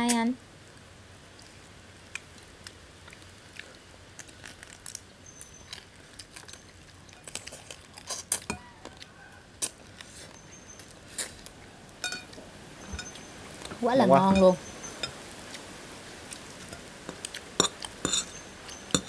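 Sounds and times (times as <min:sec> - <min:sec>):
crab shells cracking: 0:02.0 - 0:10.1
tableware clinking: 0:12.0 - 0:13.2, 0:17.6 - 0:19.0.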